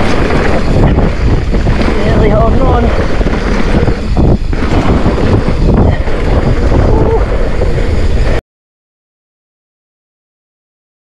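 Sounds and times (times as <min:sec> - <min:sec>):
wind buffeting microphone: 0:00.0 - 0:08.4.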